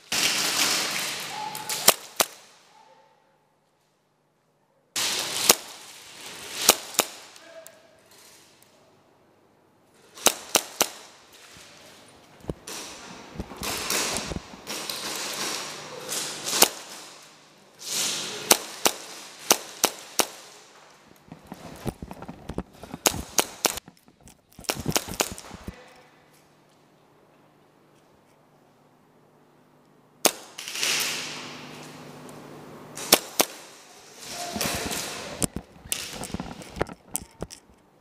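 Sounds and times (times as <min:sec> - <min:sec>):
airsoft guns firing: 0:00.0 - 0:02.6, 0:05.0 - 0:07.4, 0:10.2 - 0:11.7, 0:12.5 - 0:17.3, 0:17.9 - 0:20.9, 0:22.5 - 0:23.9, 0:24.6 - 0:25.7, 0:30.2 - 0:31.6, 0:33.0 - 0:36.3.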